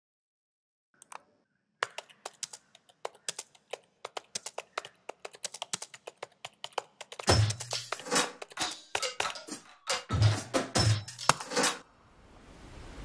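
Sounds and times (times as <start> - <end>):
keyboard typing clicks: 1.8 - 7.2.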